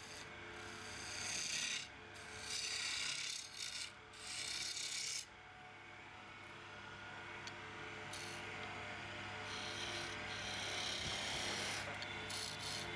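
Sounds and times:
chisel cutting wood on lathe: 0.0s - 5.2s, 9.5s - 12.9s
low steady hum: 5.3s - 12.9s.

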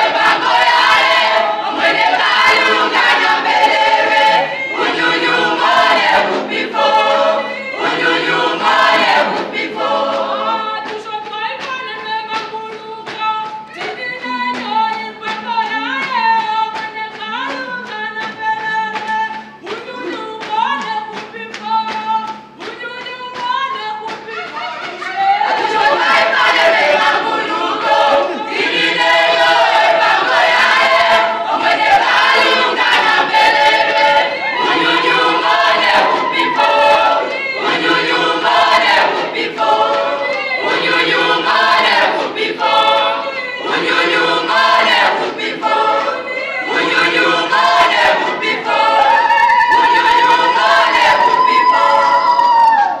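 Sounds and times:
choir singing: 0.0s - 13.2s, 24.0s - 53.0s.

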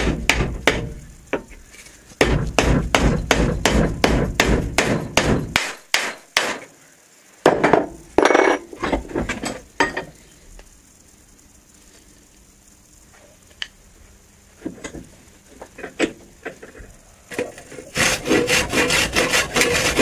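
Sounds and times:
hammer striking steel punch: 2.2s - 6.7s.

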